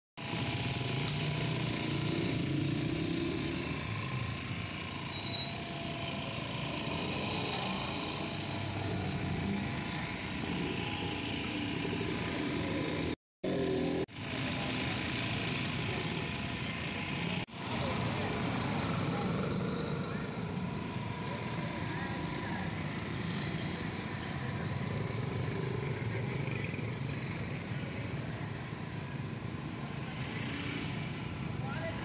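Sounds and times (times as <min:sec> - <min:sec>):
traffic hum: 0:00.2 - 0:32.0
faint voices: 0:14.4 - 0:32.0.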